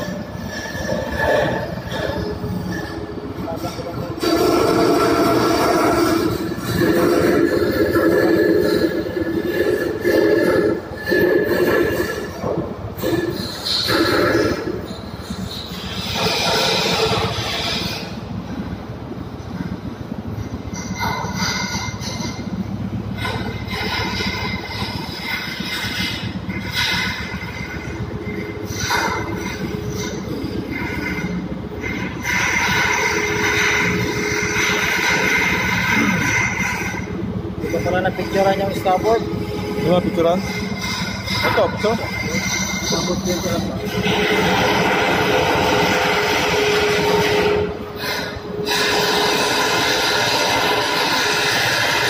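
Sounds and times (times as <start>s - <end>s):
hydraulic steering machinery whine: 0.0s - 52.0s
steady hum: 0.0s - 52.0s
steady tone: 21.7s - 51.9s.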